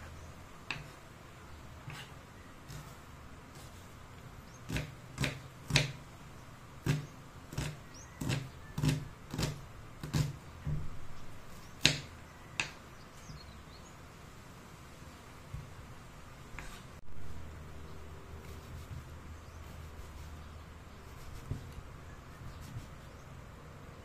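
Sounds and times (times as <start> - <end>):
knife chopping on wooden board: 0.7 - 1.0, 4.7 - 6.0, 6.8 - 10.9, 11.8 - 12.8.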